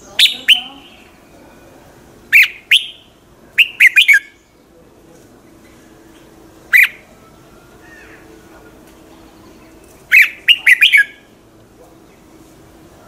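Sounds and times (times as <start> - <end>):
bird singing sharp notes: 0.0 - 1.2, 2.3 - 4.6, 6.7 - 7.1, 9.3 - 11.3.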